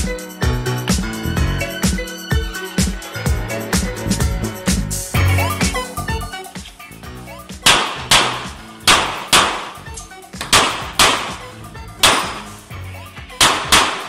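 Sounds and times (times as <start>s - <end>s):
pistol shots in quick pairs: 7.6s - 9.8s, 10.4s - 11.4s, 12.0s - 12.6s, 13.4s - 14.0s.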